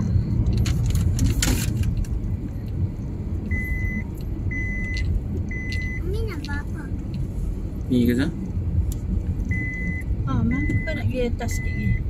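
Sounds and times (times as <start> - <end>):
engine and tyre rumble: 0.0 - 12.0
high electronic beep: 3.5 - 6.1, 9.5 - 12.0.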